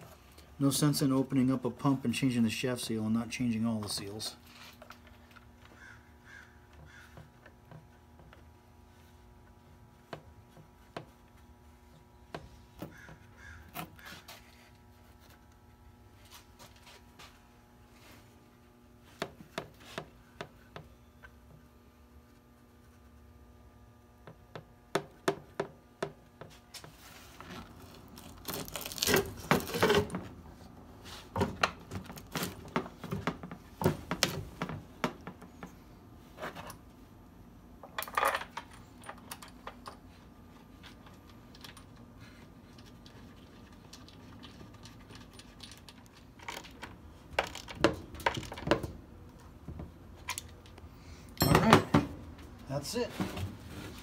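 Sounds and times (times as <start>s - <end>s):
metal clinks of tools and parts: 51.4s - 52.0s.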